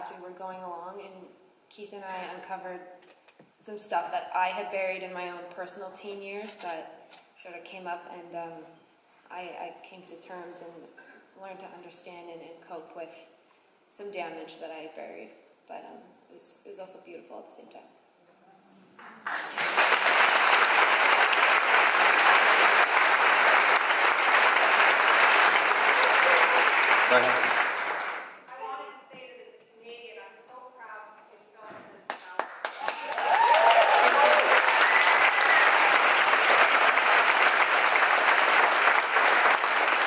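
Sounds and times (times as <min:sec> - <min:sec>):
audience applauding: 0:19.0 - 0:28.4, 0:32.1 - 0:40.0.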